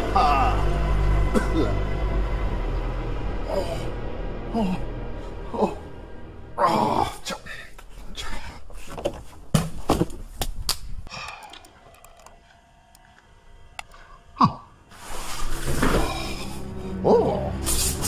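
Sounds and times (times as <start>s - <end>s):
mouse and keyboard clicks: 11.1s - 12.4s.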